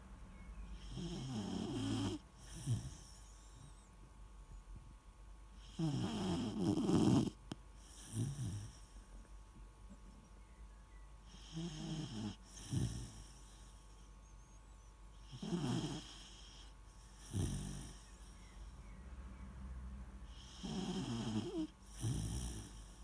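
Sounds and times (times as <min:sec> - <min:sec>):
puppy snoring: 0:00.8 - 0:03.9, 0:05.6 - 0:09.1, 0:11.2 - 0:14.0, 0:15.2 - 0:18.8, 0:20.2 - 0:23.0.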